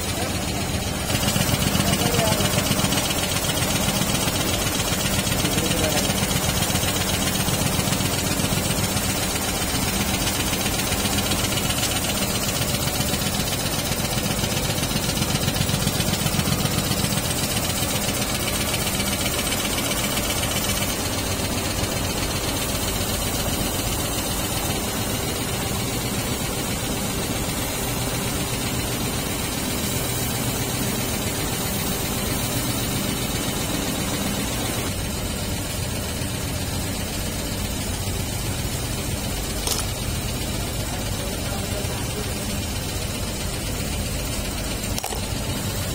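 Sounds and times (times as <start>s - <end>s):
quilting machine clattering: 0.0s - 22.9s.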